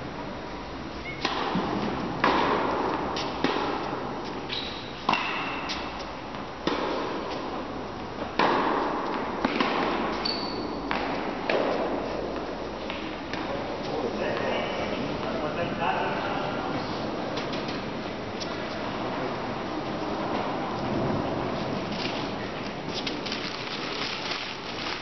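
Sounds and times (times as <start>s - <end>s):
tennis racket hitting ball: 1.2s - 14.5s.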